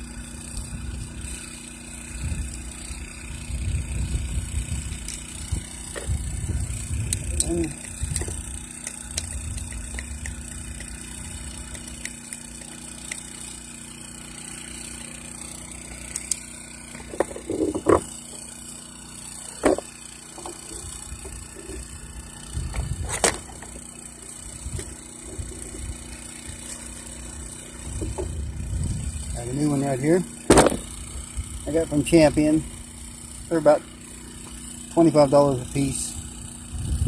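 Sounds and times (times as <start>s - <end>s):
low steady rumble: 0.0s - 13.0s, 19.4s - 34.6s, 35.5s - 37.0s
clicks and knocks of metal and plastic: 17.0s - 18.1s, 19.6s - 21.8s, 22.8s - 23.8s, 30.5s - 30.9s.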